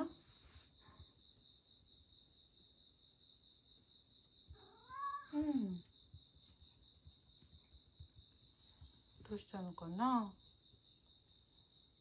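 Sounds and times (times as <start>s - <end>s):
cat meowing: 4.6s - 5.4s.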